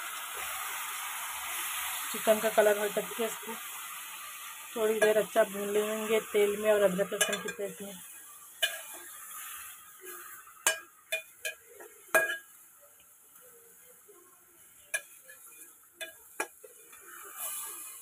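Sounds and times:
metal ladle clinking against pot: 7.2 - 7.7, 10.6 - 12.5.

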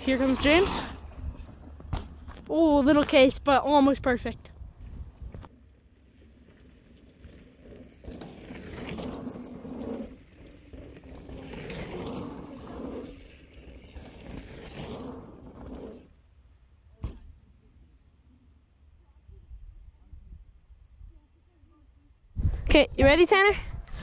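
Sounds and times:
knobby tyres rumbling on dirt: 0.0 - 3.4, 4.7 - 16.2.

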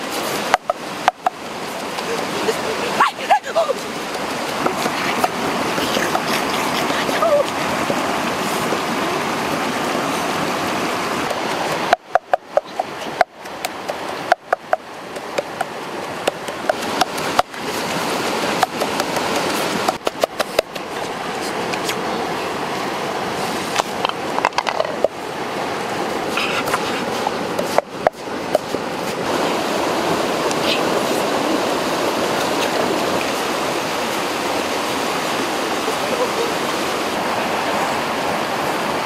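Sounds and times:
water rushing in a rocky stream: 0.0 - 39.0
pestle striking a mortar: 11.3 - 17.5, 18.5 - 20.8
sharp knocks and clicks: 11.3 - 17.6, 18.6 - 20.8, 23.8 - 25.2.

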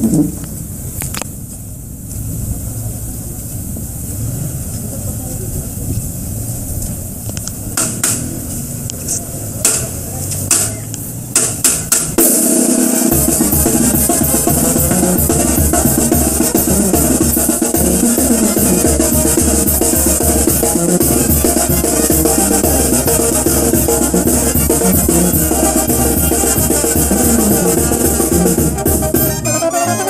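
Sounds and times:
drum strokes: 11.4 - 30.0
brass band playing loudly: 12.2 - 30.0.

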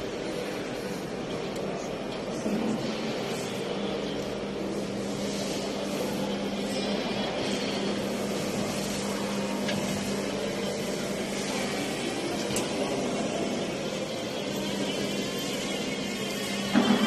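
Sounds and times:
machine hum: 0.0 - 17.0.

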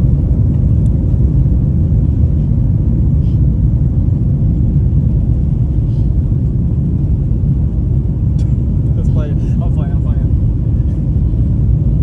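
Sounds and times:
jet engines rumbling: 0.0 - 12.0
rushing air: 0.0 - 12.0.

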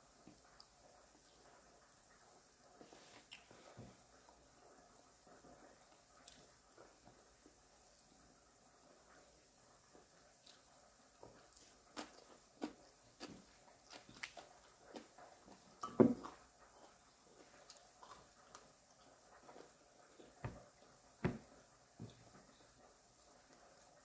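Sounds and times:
chewing crunchy salad: 10.4 - 20.9.

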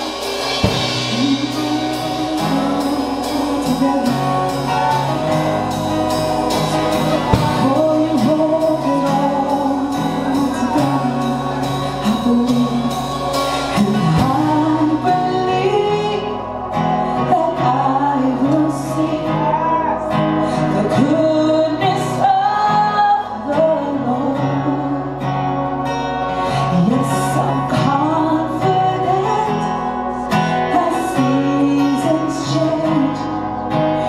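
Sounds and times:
voices singing: 0.0 - 25.1
band with guitar and beat: 0.0 - 34.0.

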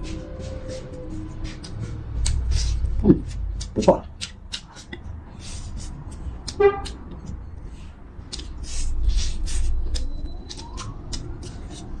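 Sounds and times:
low vehicle rumble: 0.0 - 12.0
short horn toot: 6.6 - 7.0.

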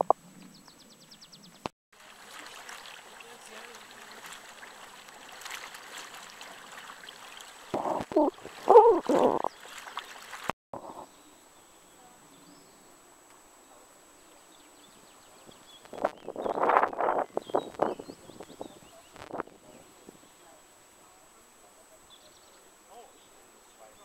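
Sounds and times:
gas bubbling through water: 7.7 - 9.7
person's voice: 7.8 - 9.5.

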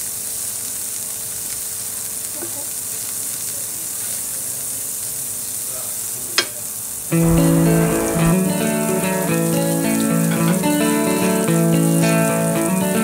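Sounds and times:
plucked-string background music: 7.2 - 9.4.

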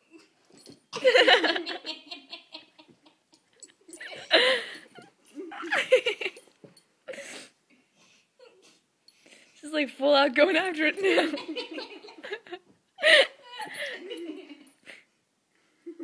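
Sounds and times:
person laughing: 4.0 - 6.4.

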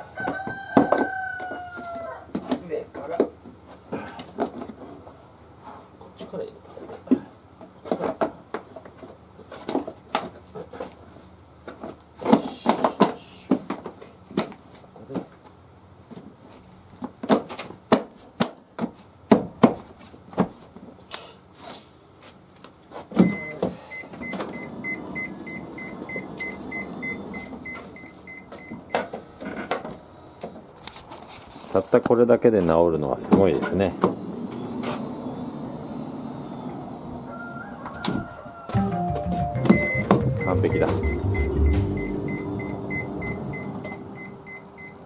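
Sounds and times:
warning beeper chiming: 38.8 - 45.0
sliding door motor whirring: 41.2 - 44.9.

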